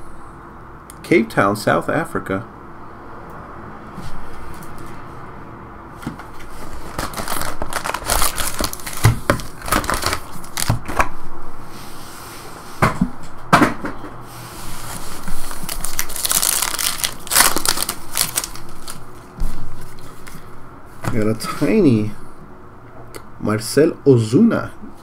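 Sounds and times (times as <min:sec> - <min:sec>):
card pack wrappers crinkling and tearing: 0:06.6 - 0:11.1, 0:15.4 - 0:19.2.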